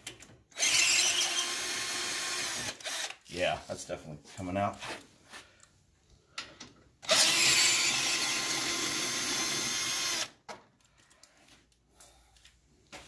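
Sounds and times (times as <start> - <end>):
cordless drill spinning: 0.5 - 3.3, 7.0 - 10.4.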